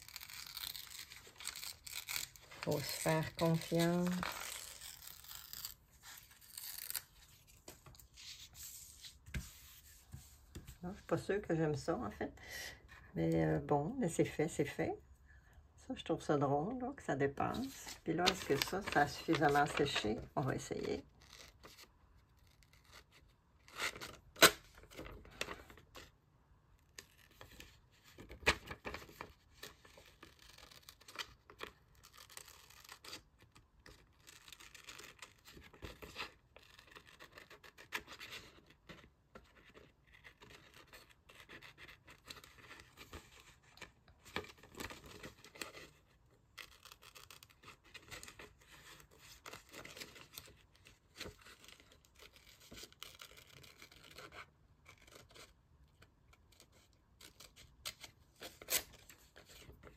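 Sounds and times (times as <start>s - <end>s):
paper rustling and tearing: 0.0s - 10.8s, 17.5s - 26.1s, 39.6s - 55.6s.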